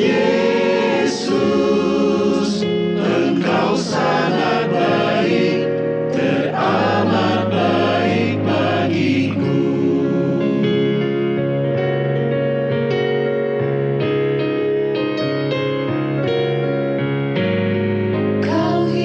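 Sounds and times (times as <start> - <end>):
choir singing a hymn: 0.0 - 11.4, 18.4 - 19.0.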